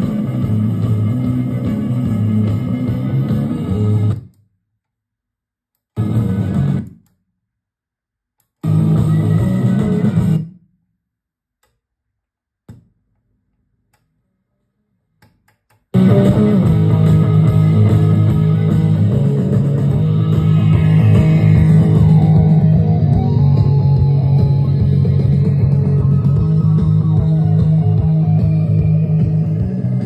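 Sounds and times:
guitar rock music: 0:00.0 - 0:04.2, 0:06.0 - 0:06.8, 0:08.6 - 0:10.4, 0:16.0 - 0:30.0.

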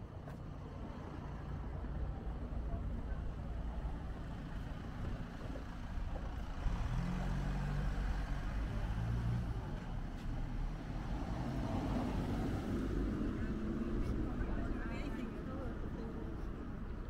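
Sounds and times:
cars driving slowly past: 0:00.0 - 0:17.0.

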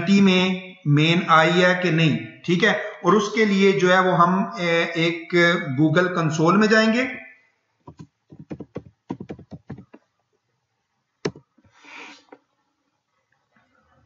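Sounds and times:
keyboard key clicks: 0:07.9 - 0:10.0.

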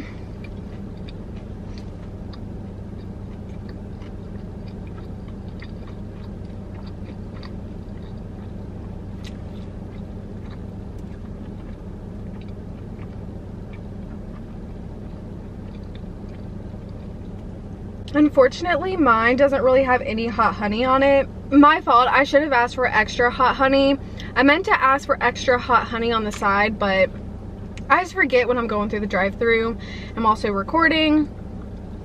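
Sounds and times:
person chewing crispy food: 0:00.0 - 0:18.1
low car hum: 0:00.0 - 0:32.0.

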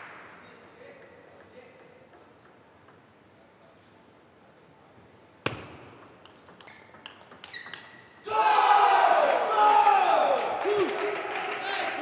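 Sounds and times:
table tennis ball clicks: 0:00.0 - 0:03.1, 0:05.5 - 0:08.3.

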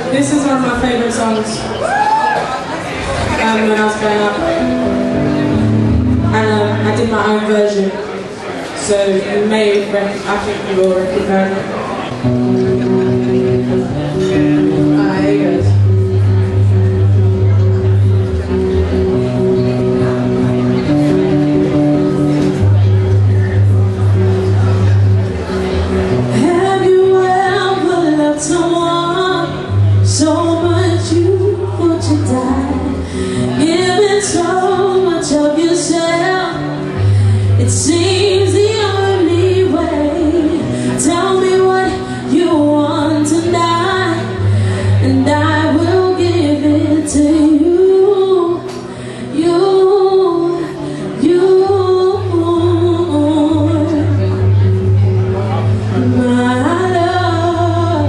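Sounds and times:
electric guitar: 0:01.6 - 0:08.2, 0:10.4 - 0:58.0
woman singing: 0:06.2 - 0:07.9, 0:26.3 - 0:54.2, 0:56.0 - 0:58.0.

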